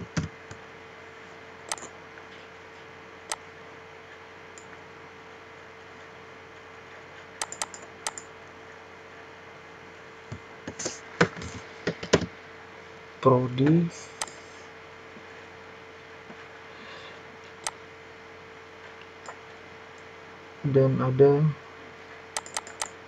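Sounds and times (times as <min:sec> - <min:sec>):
faint steady hum: 0:00.0 - 0:23.0
keyboard and mouse clicks: 0:01.7 - 0:01.9, 0:07.4 - 0:08.3, 0:22.4 - 0:23.0.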